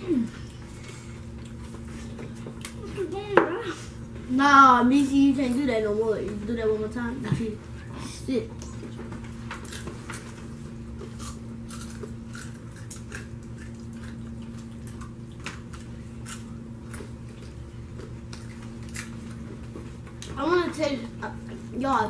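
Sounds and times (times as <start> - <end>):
people chewing crunchy popcorn: 0.0 - 3.1, 7.9 - 20.4
steady low hum: 0.0 - 22.0.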